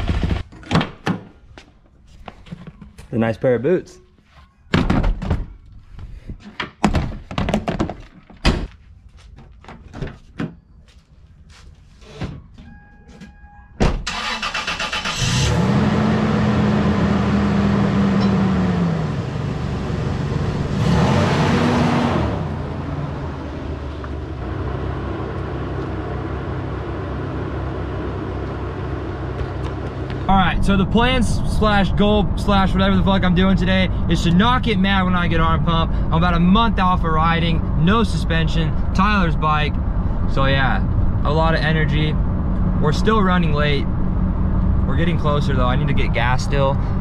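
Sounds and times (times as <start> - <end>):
truck engine starting and idling: 13.8 - 47.0.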